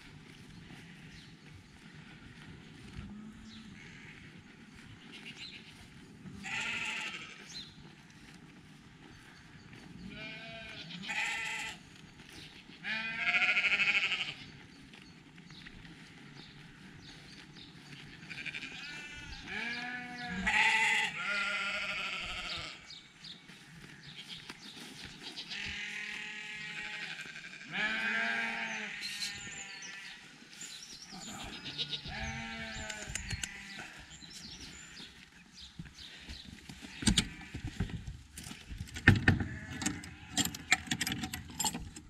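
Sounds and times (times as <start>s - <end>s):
sheep bleating: 2.0s - 4.8s, 6.4s - 7.6s, 10.0s - 11.8s, 12.7s - 14.5s, 18.2s - 22.9s, 25.2s - 30.3s, 31.1s - 35.1s, 36.9s - 37.6s.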